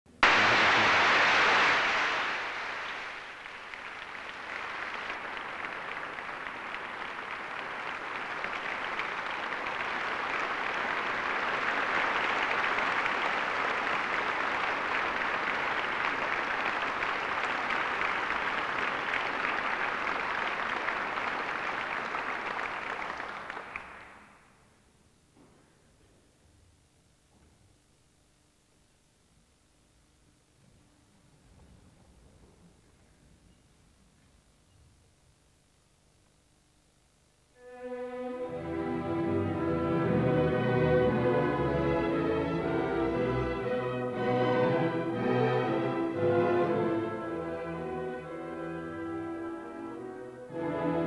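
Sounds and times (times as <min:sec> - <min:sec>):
audience applauding: 0:00.1 - 0:24.7.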